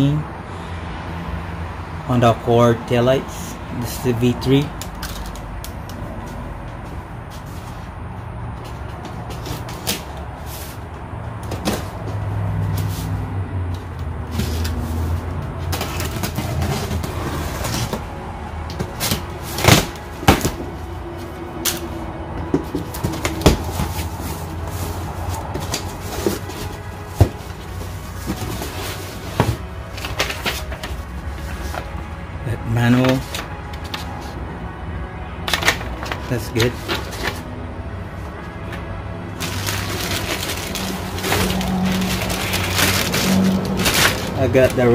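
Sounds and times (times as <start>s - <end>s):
cardboard scrapes and rustles: 14.3s - 18.0s, 22.8s - 31.9s, 39.4s - 44.4s
packing tape peeled off: 39.4s - 44.4s.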